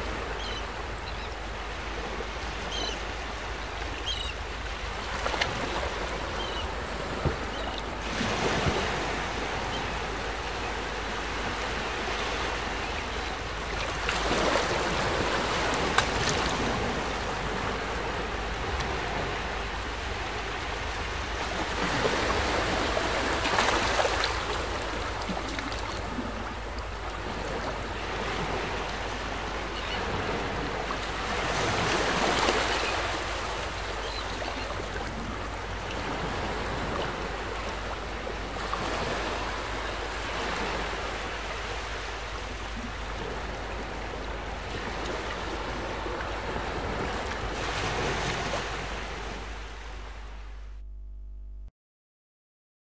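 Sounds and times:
sea waves breaking on shore: 0.0 - 50.7.

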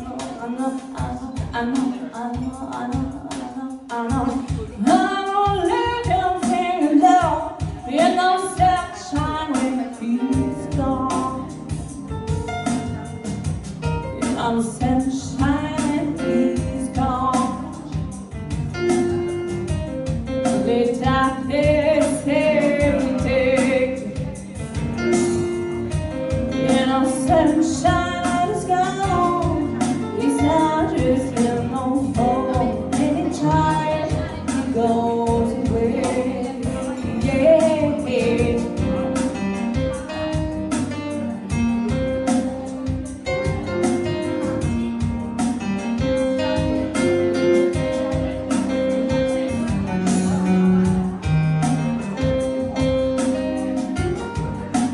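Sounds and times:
woman singing into a microphone: 0.0 - 12.9, 13.8 - 19.8, 20.4 - 43.8
electronic keyboard: 4.1 - 54.9
low bass line: 10.4 - 54.9.

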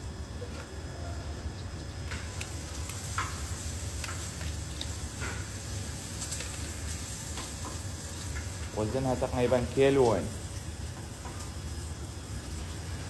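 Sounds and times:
eggshell clicking and cracking: 2.2 - 3.3, 3.9 - 5.0.

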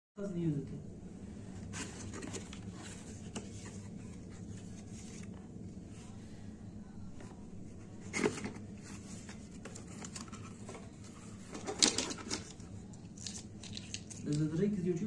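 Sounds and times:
steady low hum: 0.2 - 15.0.

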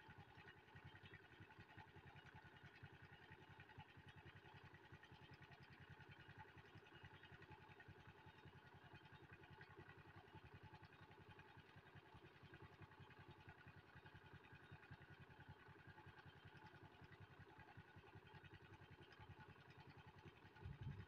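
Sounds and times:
faint engine throb: 20.6 - 21.0.

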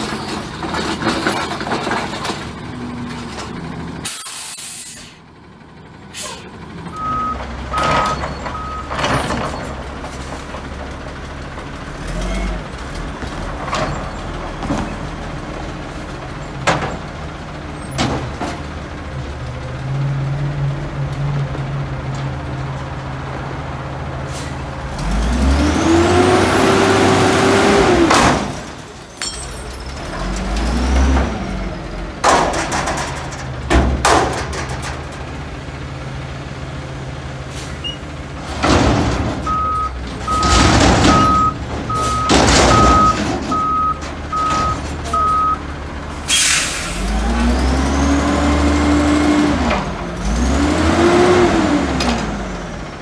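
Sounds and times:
truck engine revving: 0.0 - 53.0
air brake hiss: 4.0 - 5.2, 6.1 - 6.5, 46.3 - 47.0
reversing beeps: 6.9 - 9.0, 39.5 - 45.6
metal bangs of dumpster: 27.8 - 31.4, 32.2 - 35.4, 38.4 - 45.1.

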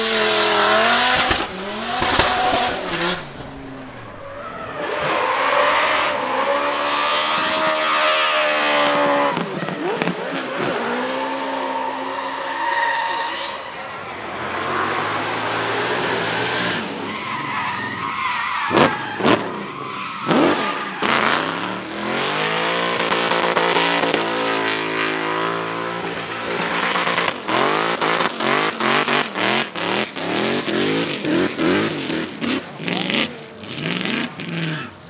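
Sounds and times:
car engine revving hard: 0.0 - 4.1, 20.2 - 35.0
sharp cracks: 1.0 - 4.2
tyre squeal: 7.4 - 13.9, 16.4 - 21.8.

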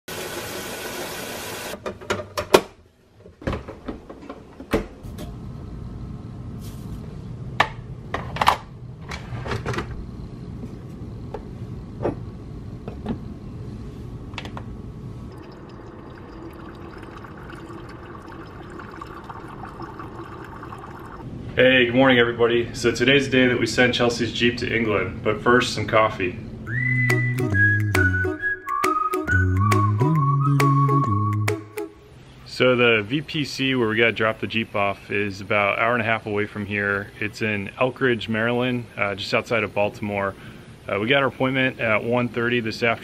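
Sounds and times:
coffee maker humming: 15.3 - 21.2
tap running water: 15.4 - 21.2.

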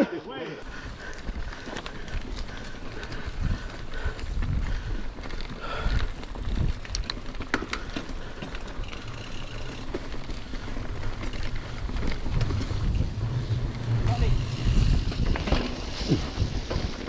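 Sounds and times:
bike tyres rumbling on dirt: 0.6 - 17.0
bike rattling clicks: 0.7 - 17.0
wind on microphone: 3.0 - 5.1, 11.6 - 17.0.

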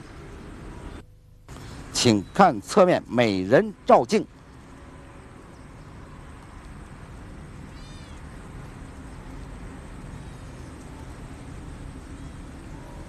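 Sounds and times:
low background rumble: 3.3 - 13.0
high-pitched animal call: 7.7 - 8.2.

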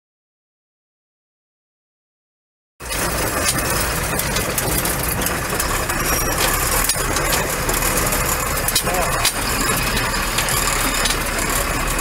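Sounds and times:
diesel truck engine running: 2.8 - 12.0.

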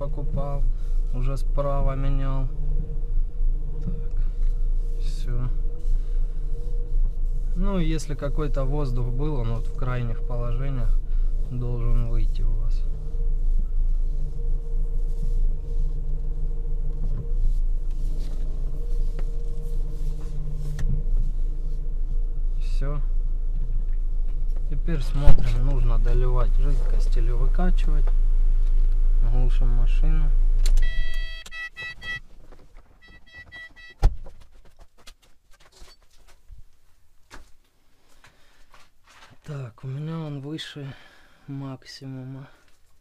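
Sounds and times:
car engine idling: 0.0 - 34.3
car warning chime beeps: 30.8 - 32.3.

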